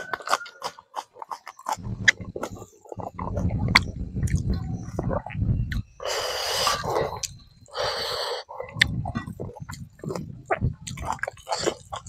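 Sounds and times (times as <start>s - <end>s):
wet chewing with smacks: 0.0s - 7.4s, 8.5s - 12.0s
loud breathy hisses: 6.0s - 6.9s, 7.7s - 8.5s.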